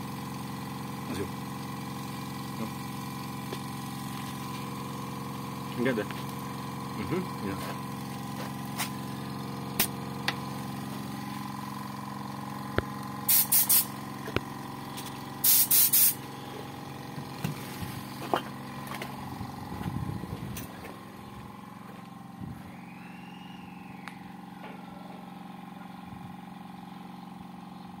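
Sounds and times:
air compressor humming: 0:00.0 - 0:28.0
compressed air hissing: 0:09.7 - 0:10.0, 0:13.2 - 0:13.9, 0:15.4 - 0:16.6.

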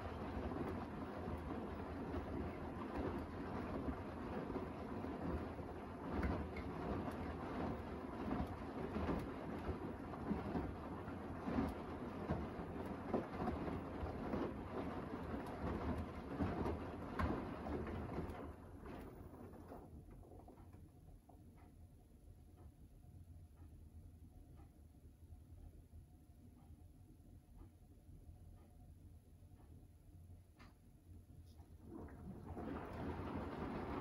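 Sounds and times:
water sloshing in washing drum: 0:00.0 - 0:20.4, 0:31.8 - 0:34.0
faint machine hum: 0:00.0 - 0:34.0.

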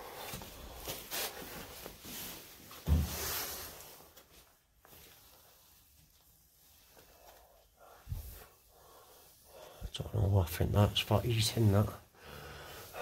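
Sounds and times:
rustling and scraping handling: 0:00.2 - 0:09.7.

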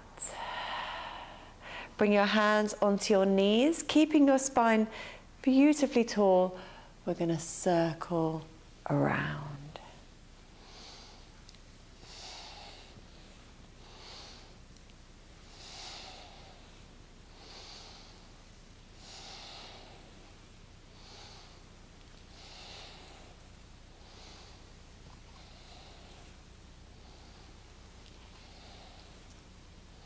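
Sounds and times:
woman breathing rhythmically: 0:00.0 - 0:02.0, 0:04.9 - 0:05.4, 0:06.5 - 0:07.0, 0:09.8 - 0:30.0.

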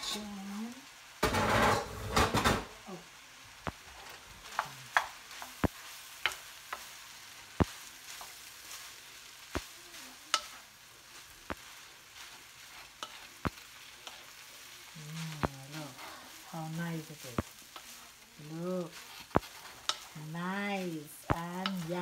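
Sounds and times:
rice frying sizzle: 0:00.0 - 0:22.0
wooden spoon knocking on wok: 0:04.5 - 0:06.9.

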